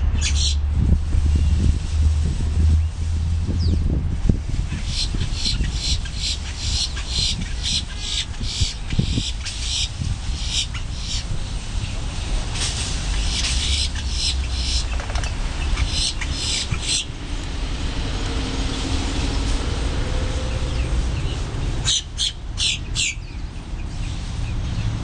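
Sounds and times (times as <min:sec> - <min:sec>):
grackles calling harsh notes: 0:00.0 - 0:00.7, 0:04.7 - 0:11.3, 0:13.1 - 0:17.2
low rumble: 0:00.0 - 0:07.6, 0:11.3 - 0:21.8.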